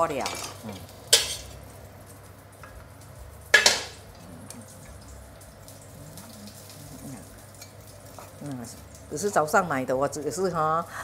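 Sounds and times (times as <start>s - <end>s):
faint meat sizzling: 0.0s - 11.0s
metal spatula clanging on wok: 0.2s - 1.6s, 3.5s - 4.0s.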